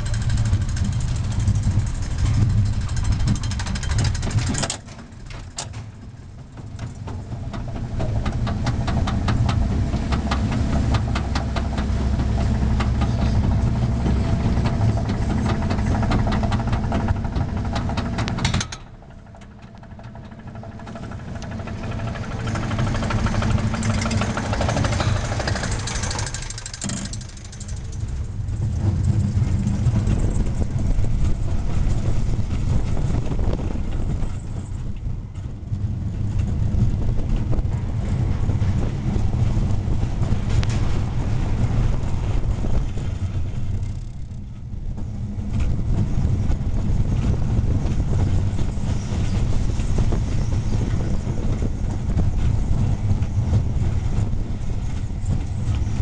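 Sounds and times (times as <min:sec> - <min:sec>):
chain lift clicking clatter: 0:00.0 - 0:35.4, 0:42.7 - 0:44.7
roller coaster wheels on track: 0:00.0 - 0:56.0.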